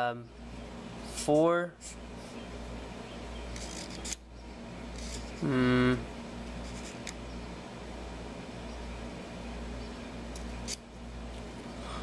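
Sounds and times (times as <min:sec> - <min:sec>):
low background hum: 0:00.0 - 0:12.0
man humming: 0:05.4 - 0:06.1.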